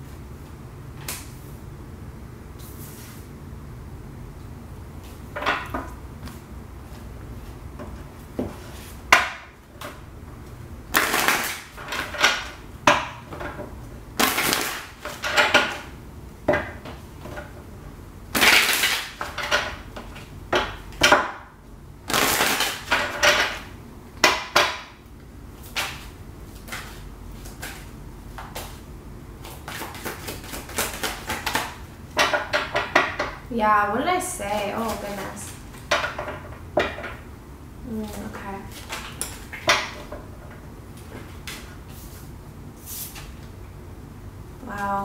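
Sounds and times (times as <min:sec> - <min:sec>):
cards shuffling: 0:25.6 - 0:28.8, 0:29.4 - 0:31.8.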